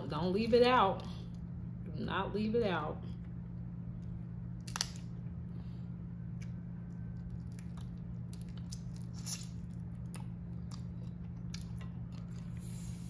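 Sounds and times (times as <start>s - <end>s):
steady low hum: 0.0s - 13.0s
soft chewing: 5.6s - 13.0s.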